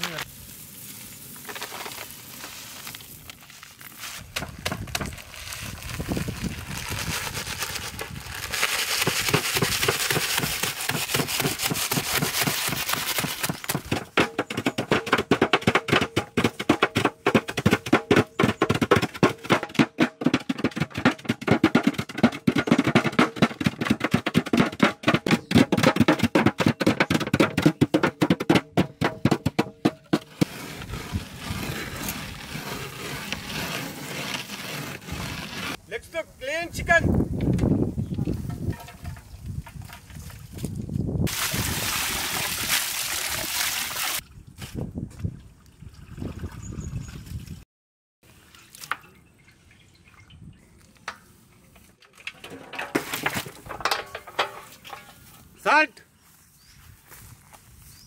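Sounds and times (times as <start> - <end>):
cutting boards knocking in pan: 9.3 - 30.5.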